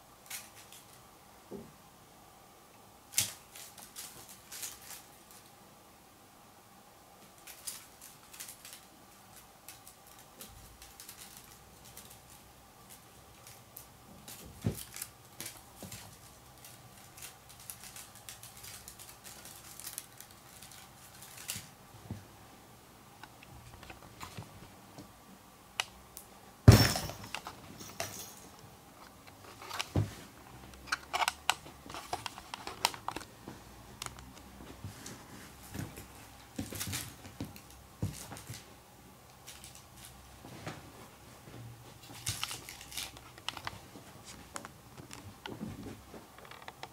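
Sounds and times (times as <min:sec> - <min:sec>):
rustles and light clicks on bedding: 0:26.8 - 0:30.8, 0:31.6 - 0:38.8, 0:39.4 - 0:46.9.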